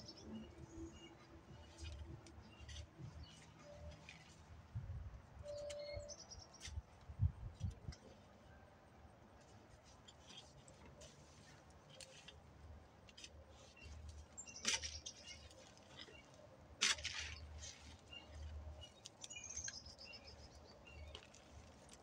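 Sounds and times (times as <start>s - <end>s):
bird chirping: 5.4s - 6.8s, 17.2s - 21.2s
garden fork scraping soil: 16.8s - 19.7s.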